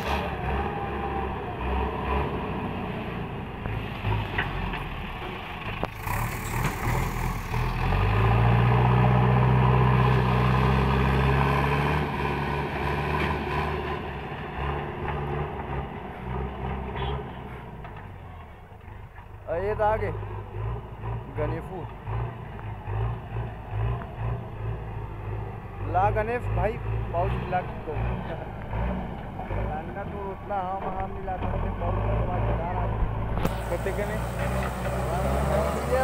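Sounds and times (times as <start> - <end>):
loader bucket pushing through soil: 5.9 - 7.7, 33.4 - 36.0
diesel engine running: 20.4 - 36.0.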